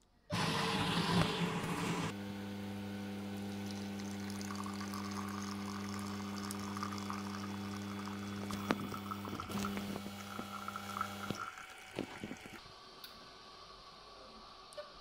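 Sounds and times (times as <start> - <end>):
coffee machine pump hum: 0.3 - 12.6
coffee streaming into glass: 3.4 - 12.6.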